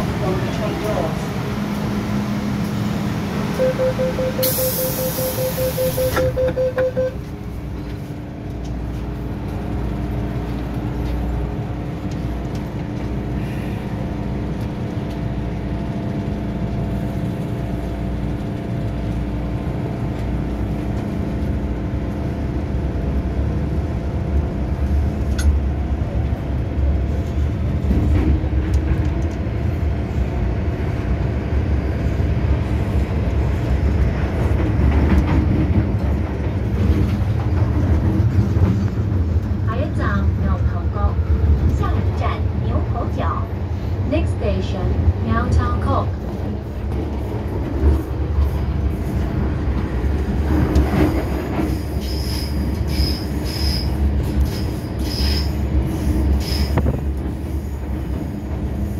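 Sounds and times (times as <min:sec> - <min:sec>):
train motor hum and rumble: 0:00.0 - 0:58.9
train doors shutting: 0:02.6 - 0:08.0, 0:46.8 - 0:58.9
door warning beeps: 0:03.6 - 0:07.2.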